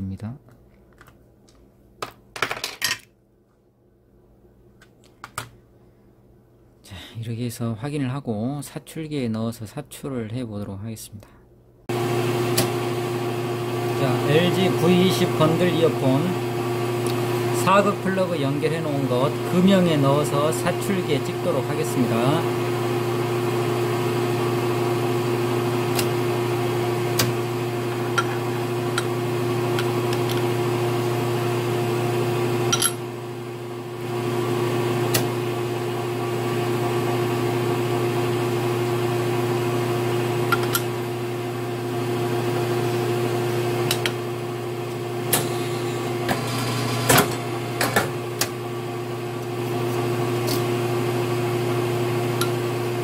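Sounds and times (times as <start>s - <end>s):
moulding machine humming: 11.9s - 53.0s.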